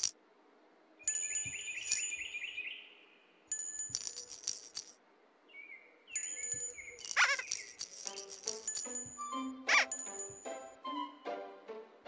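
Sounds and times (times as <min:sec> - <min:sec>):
tinkling bell-like sound effects: 0:01.1 - 0:02.7, 0:03.5 - 0:05.0, 0:06.1 - 0:10.9.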